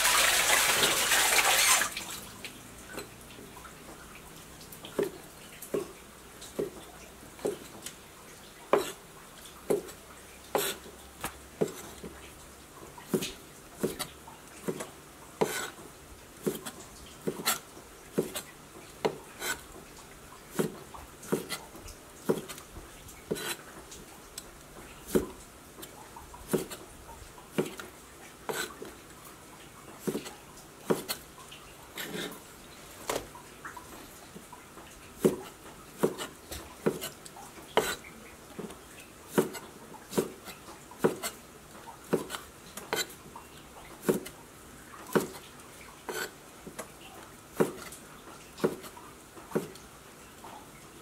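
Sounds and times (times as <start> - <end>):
knife chopping on wooden board: 8.7 - 9.0, 13.1 - 15.7, 16.4 - 17.6, 18.2 - 18.4, 20.5 - 21.6, 22.3 - 22.6, 25.1 - 25.4, 26.5 - 26.8, 30.0 - 30.3, 30.9 - 31.2, 35.2 - 37.2, 37.8 - 38.0, 39.3 - 41.4, 42.1 - 43.2, 44.0 - 44.3, 45.1 - 45.4, 47.6 - 47.9, 48.6 - 48.9, 49.5 - 49.8.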